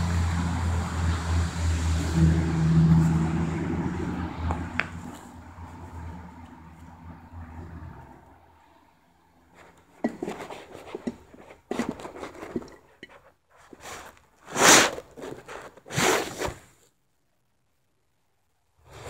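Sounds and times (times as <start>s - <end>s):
handling crackling and scraping: 2.9s - 8.3s, 9.4s - 17.0s.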